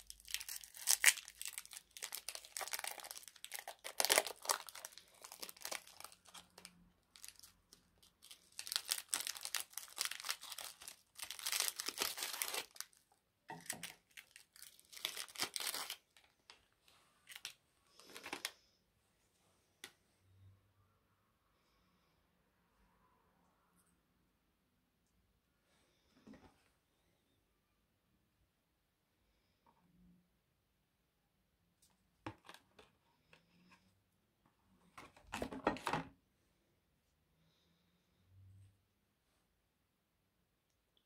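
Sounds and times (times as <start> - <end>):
foil wrappers crinkling and tearing: 0.0 - 13.0, 13.6 - 16.3.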